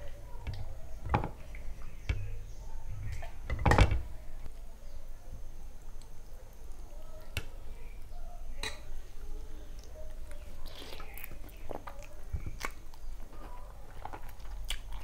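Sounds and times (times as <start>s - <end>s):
chewing food: 9.7s - 15.0s.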